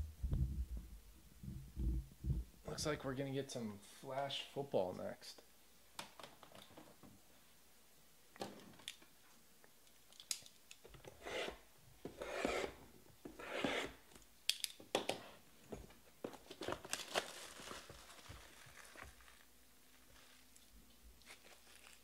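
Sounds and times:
cardboard packaging tearing: 16.5 - 20.5, 21.2 - 22.0.

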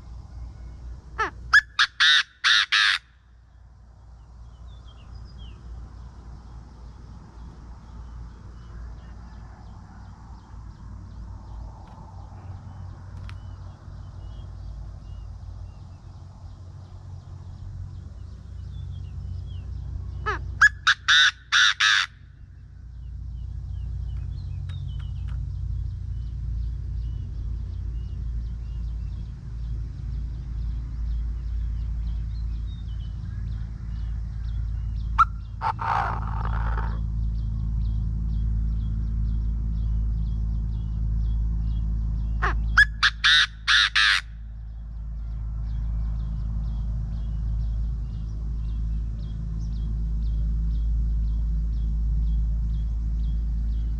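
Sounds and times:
francolin calling: 0.3 - 5.7, 18.6 - 25.4, 32.6 - 37.4, 40.8 - 45.3.

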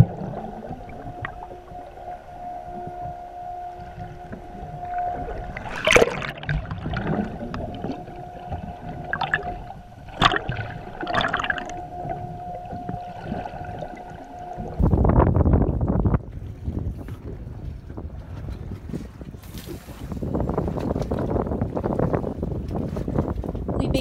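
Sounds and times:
underwater boat engine hum: 0.0 - 18.9.

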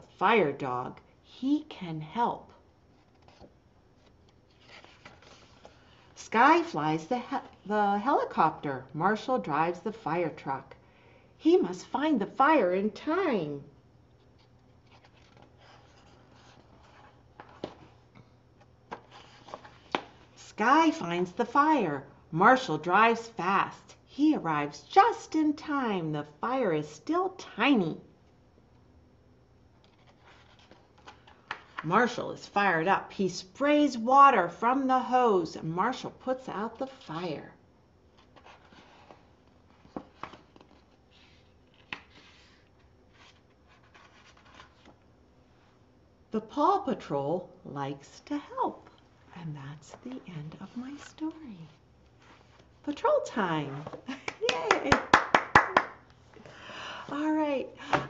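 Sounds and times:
low steady hum: 0.0 - 58.0
paper rustling: 2.9 - 6.1, 14.2 - 18.0, 18.9 - 20.3, 29.8 - 31.8, 38.1 - 45.0.

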